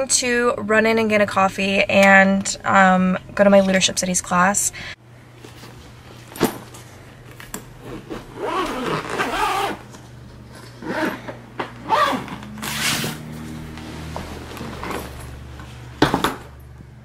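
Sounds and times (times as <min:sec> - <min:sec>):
fabric suitcase rustling and scraping: 0:05.4 - 0:06.9, 0:07.8 - 0:15.9.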